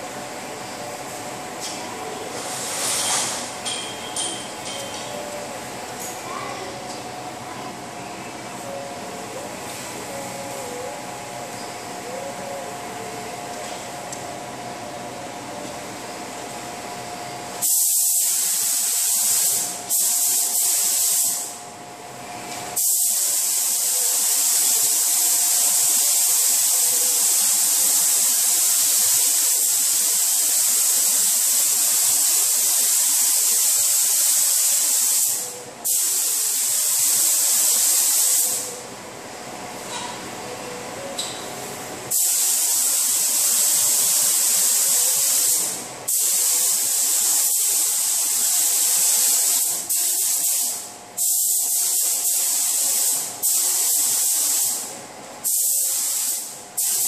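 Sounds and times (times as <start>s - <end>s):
steady hum: 0.0s - 51.2s
spray gun hissing: 17.6s - 21.5s, 22.8s - 38.8s, 42.1s - 54.8s, 55.4s - 57.0s.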